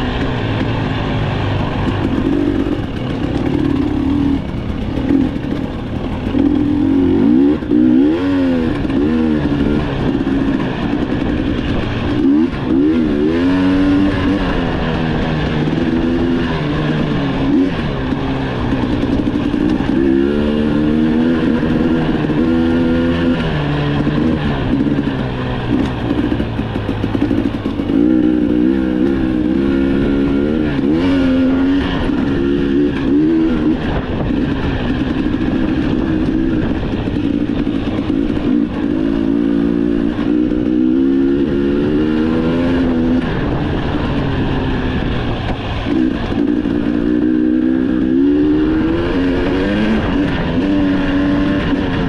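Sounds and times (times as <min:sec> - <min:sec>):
off-road vehicle engine revving: 0:00.0 - 0:52.0.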